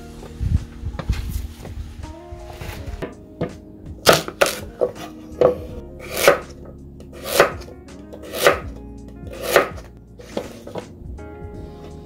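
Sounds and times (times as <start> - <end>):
knife cutting radish on board: 4.1 - 6.5, 7.2 - 8.6, 9.3 - 10.8.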